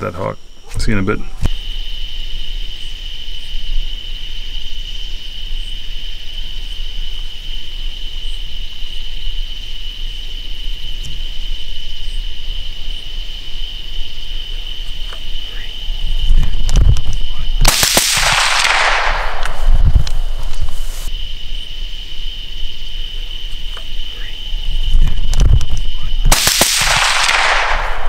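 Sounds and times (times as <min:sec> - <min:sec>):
night insects trilling: 0:00.0 - 0:28.0
low rumble: 0:15.8 - 0:21.1, 0:24.6 - 0:28.0.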